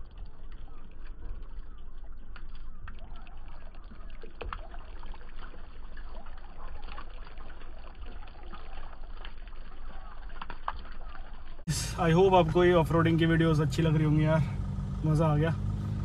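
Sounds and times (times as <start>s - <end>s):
sharp drip ticks: 0.0s - 11.7s
low steady rumble: 0.0s - 16.0s
muddy water trickling and dripping: 0.0s - 16.0s.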